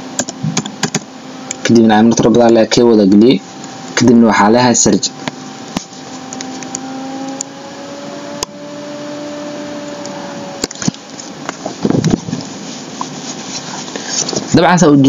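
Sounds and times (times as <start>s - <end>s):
machine hum: 0.0s - 15.0s
sharp clicks: 0.2s - 1.6s
faint rising and falling tone: 3.3s - 14.0s.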